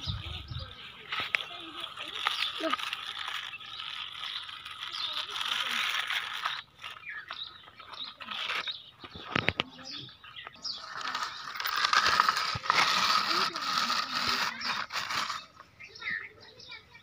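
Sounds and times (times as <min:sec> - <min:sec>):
toy wheels rattling over dirt: 0:00.0 - 0:17.0.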